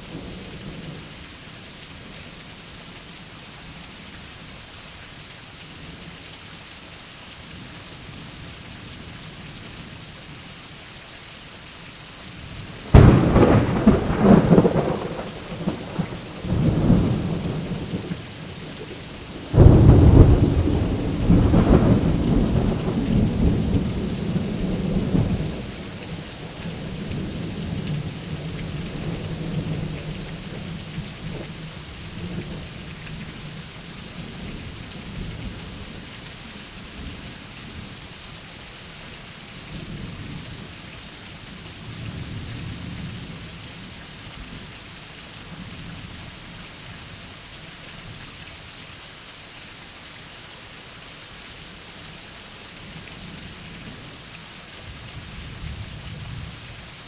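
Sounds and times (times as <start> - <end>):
heavy rain: 0.0 - 57.0
thunder rumbling: 12.9 - 18.1, 18.7 - 25.7.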